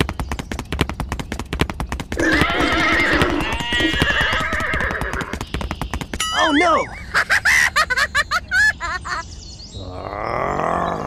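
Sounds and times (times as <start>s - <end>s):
horse whinnying: 2.2s - 5.4s.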